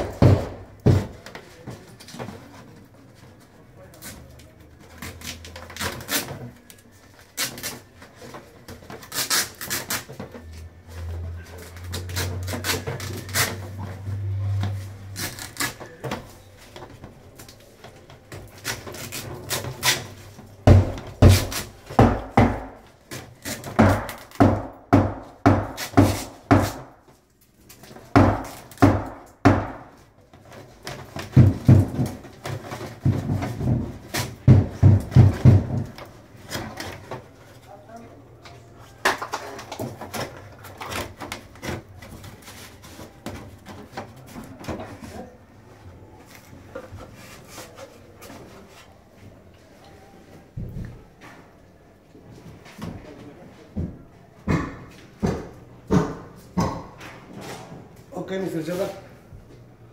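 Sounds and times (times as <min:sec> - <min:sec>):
duct knocking against framing: 0:20.6 - 0:22.8, 0:23.8 - 0:27.0.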